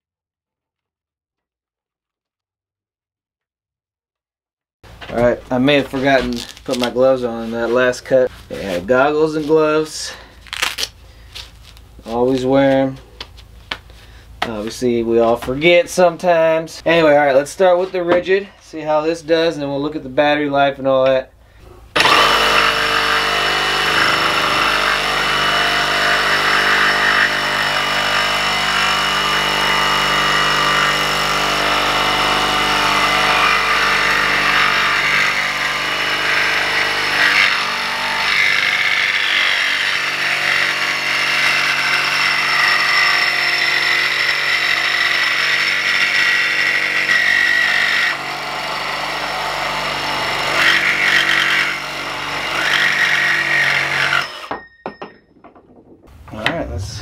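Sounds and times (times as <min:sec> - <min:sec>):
reciprocating saw cutting steel pipe: 0:21.9 - 0:54.5.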